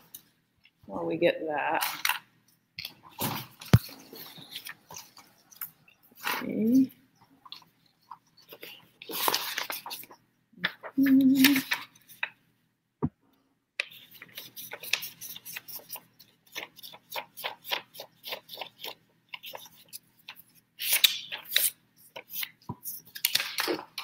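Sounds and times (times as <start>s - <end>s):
paper rustling: 2.8s - 6.8s, 7.4s - 12.4s, 13.8s - 24.0s
scissors snipping paper: 13.8s - 20.0s.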